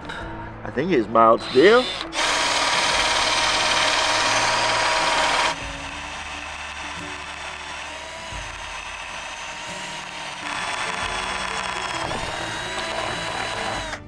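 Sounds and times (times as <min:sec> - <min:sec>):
cordless drill boring into steel: 0:01.4 - 0:14.0.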